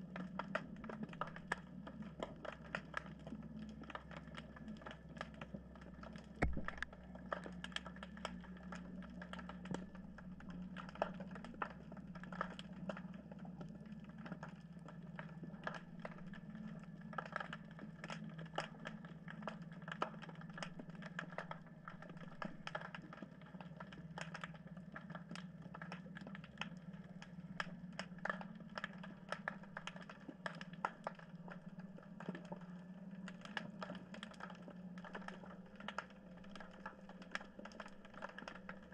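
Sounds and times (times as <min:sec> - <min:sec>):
underwater clicks and crackles: 0:00.0 - 0:38.9
steady low hum: 0:04.2 - 0:10.8.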